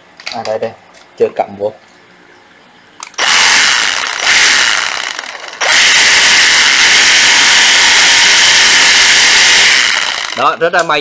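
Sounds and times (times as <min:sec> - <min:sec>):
cordless reciprocating saw running: 0:03.2 - 0:10.6.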